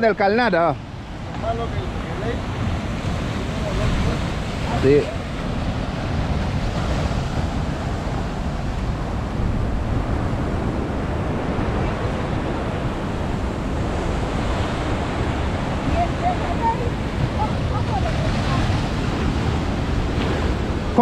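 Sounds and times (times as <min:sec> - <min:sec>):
ocean surf breaking over rocks: 0:00.0 - 0:21.0
wind on microphone rumble: 0:00.8 - 0:21.0.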